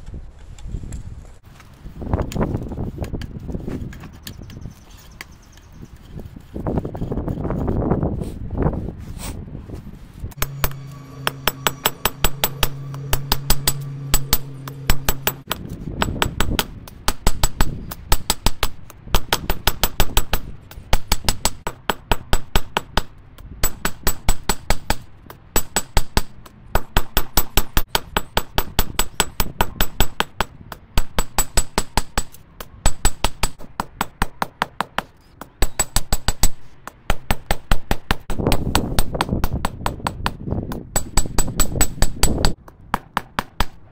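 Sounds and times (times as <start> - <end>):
steady hum: 10.3 - 17.5
hammer blows ringing on anvil: 10.4 - 18.4.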